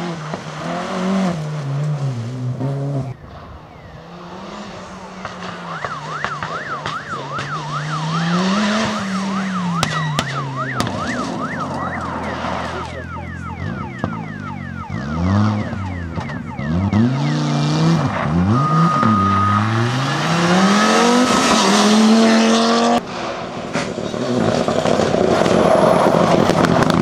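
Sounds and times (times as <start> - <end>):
rally car engine revving: 0.0 - 27.0
siren wailing: 3.2 - 23.0
tyres sliding on gravel: 11.2 - 13.0.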